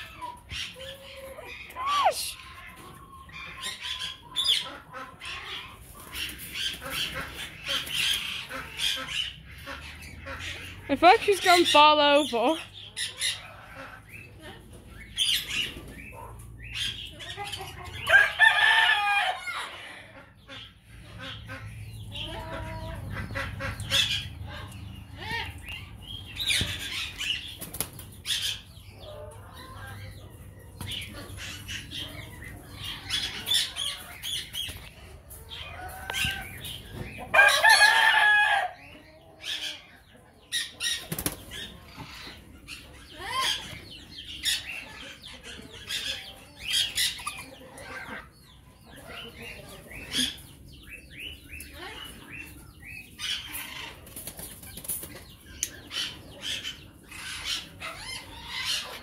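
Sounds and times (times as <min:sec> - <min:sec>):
chickens clucking and calling: 0:00.0 - 0:59.0
wings flapping: 0:27.6 - 0:28.1, 0:41.0 - 0:41.6.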